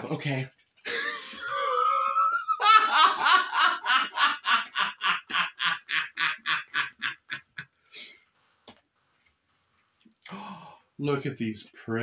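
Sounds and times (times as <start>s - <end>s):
man laughing hard: 0.9s - 7.7s.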